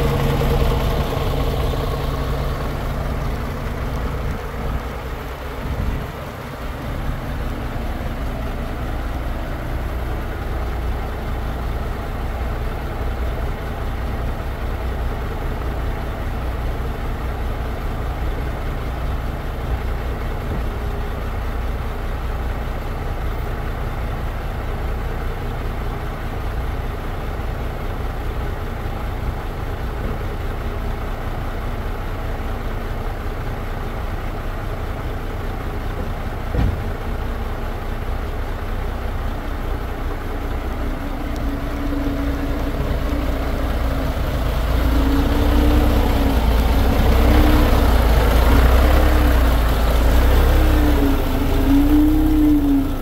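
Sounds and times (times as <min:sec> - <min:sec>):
truck diesel engine idling: 0:00.0 - 0:53.0.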